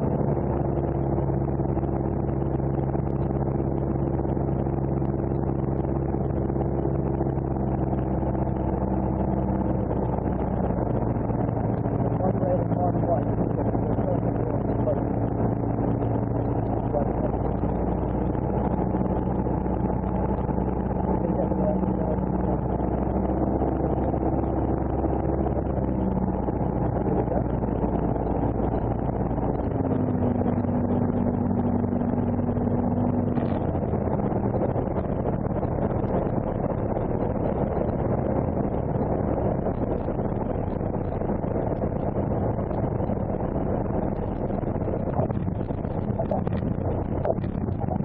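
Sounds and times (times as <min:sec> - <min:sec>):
propeller aircraft engine droning: 0:00.0 - 0:48.0.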